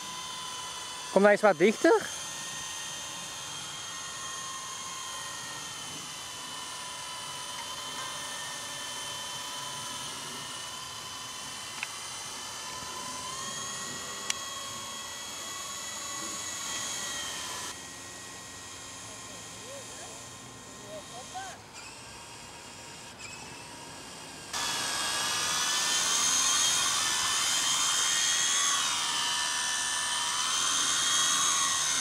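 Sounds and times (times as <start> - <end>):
toy helicopter rotor whine: 0.0 - 32.0.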